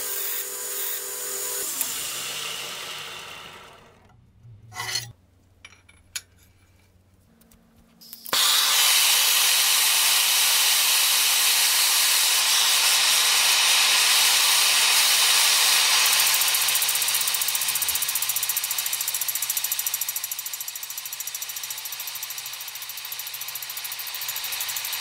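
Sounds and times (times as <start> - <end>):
gas torch hissing: 8.2 - 18.6.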